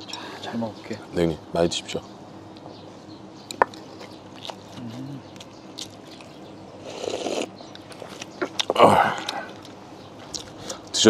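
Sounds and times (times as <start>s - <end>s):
low voice hum: 4.7s - 5.5s, 8.6s - 9.6s
slurping from a bowl: 6.8s - 7.5s.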